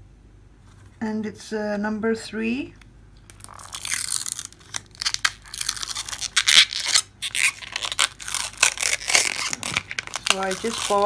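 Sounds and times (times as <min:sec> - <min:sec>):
plastic film crackling and tearing: 0:03.3 - 0:11.0.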